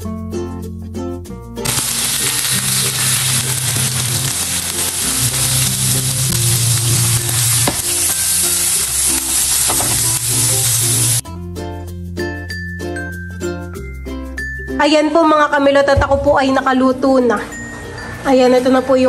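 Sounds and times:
background music with bass line: 0:00.0 - 0:14.8
fish sizzling in hot oil: 0:01.6 - 0:11.2.

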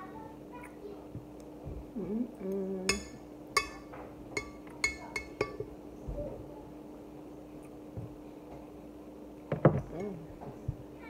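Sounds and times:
person humming: 0:01.9 - 0:03.2
spoon clinking against glass bowl: 0:02.9 - 0:05.7.

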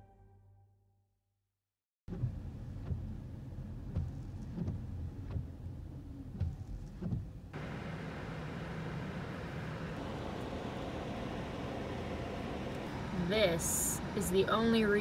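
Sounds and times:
windscreen wiper sweeping: 0:02.1 - 0:12.7
low rumble inside car: 0:02.1 - 0:15.0.

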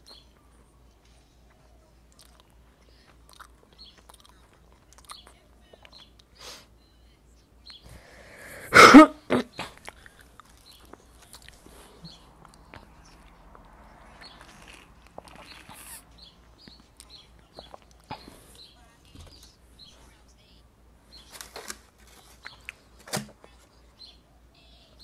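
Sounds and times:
woman coughing: 0:08.5 - 0:09.8.

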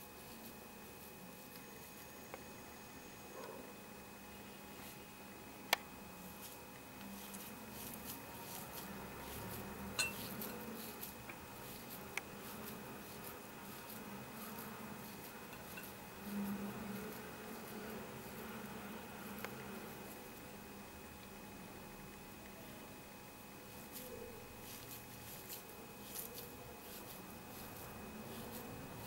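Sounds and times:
hands pressing crumbly mixture: 0:05.8 - 0:20.5, 0:23.6 - 0:29.0.

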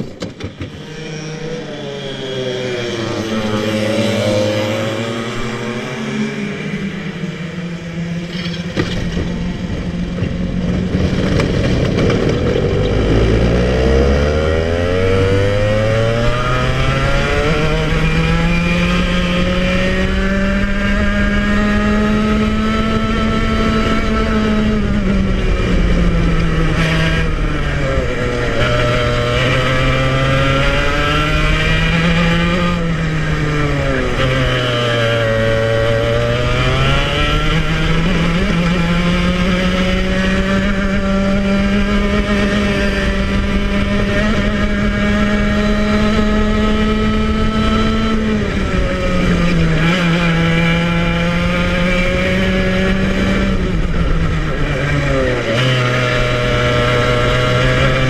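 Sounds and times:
two-stroke kart engine revving: 0:00.0 - 0:58.0.

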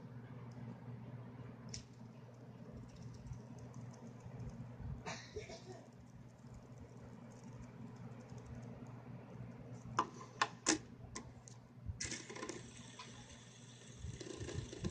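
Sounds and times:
fidget spinner clicks and taps: 0:02.8 - 0:04.6, 0:05.9 - 0:09.0
fidget spinner spinning hiss: 0:05.7 - 0:09.2, 0:12.0 - 0:14.9.

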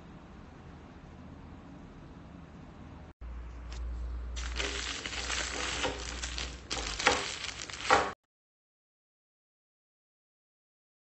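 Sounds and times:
crackling rustling handling noise: 0:03.5 - 0:08.2.

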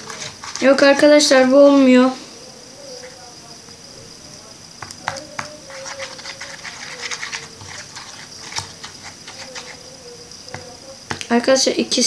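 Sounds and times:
plastic stick stirring runny slime: 0:00.0 - 0:01.5, 0:04.6 - 0:11.4.

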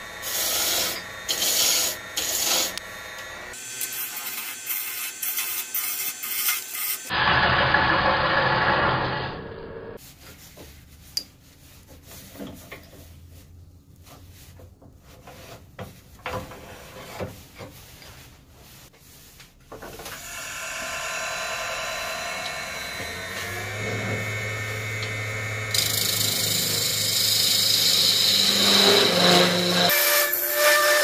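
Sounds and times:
lathe motor whine: 0:00.0 - 0:05.2, 0:20.1 - 0:30.0
gouge scraping spinning wood: 0:00.2 - 0:07.1, 0:20.2 - 0:30.2.

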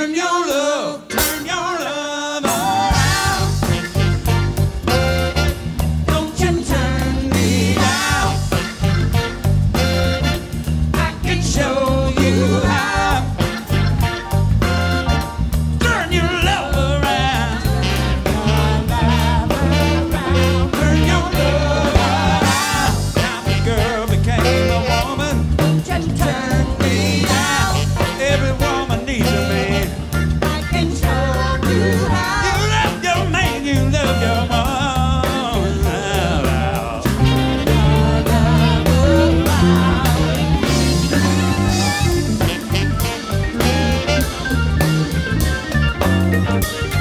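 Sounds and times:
drums: 0:00.0 - 0:47.0
organ: 0:00.5 - 0:47.0
bass line: 0:02.4 - 0:47.0
person singing: 0:15.8 - 0:42.7.

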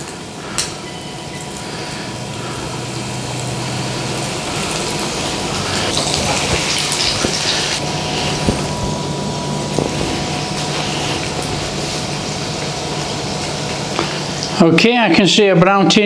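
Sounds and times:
chicken frying in hot oil: 0:00.0 - 0:16.0.

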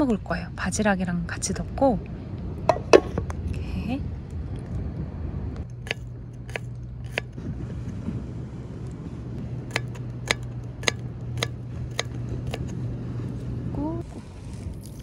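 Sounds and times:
knife tapping cutting board: 0:09.7 - 0:12.6.

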